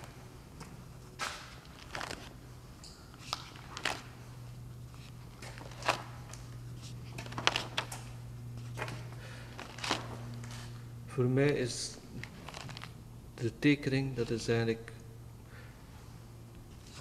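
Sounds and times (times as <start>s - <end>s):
low hum: 0.0s - 17.0s
paper pages turning: 1.2s - 2.4s, 3.2s - 4.2s, 4.9s - 8.0s, 9.6s - 10.8s, 12.1s - 13.0s.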